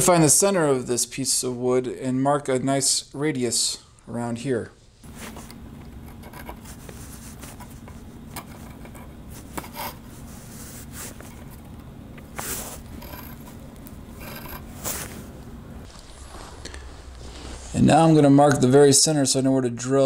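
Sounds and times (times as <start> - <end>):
steady low hum: 0.0 - 19.9
pencil compass scraping on wood: 5.3 - 11.6, 12.2 - 15.3.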